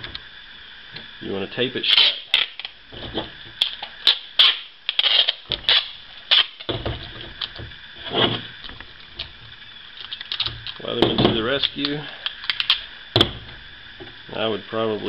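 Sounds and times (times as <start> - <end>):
packing tape pulled off roll: 1.8 - 9.4, 10.0 - 13.4.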